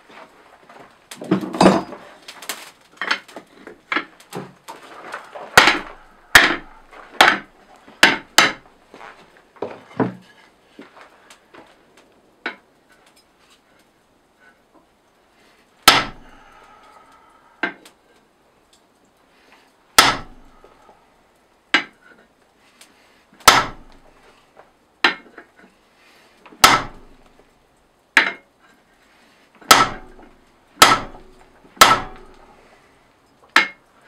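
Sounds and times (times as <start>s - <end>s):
hammer striking metal on anvil: 5.6s - 8.6s, 15.9s - 16.3s, 20.0s - 20.5s, 23.5s - 24.0s, 26.6s - 27.1s, 29.7s - 32.5s.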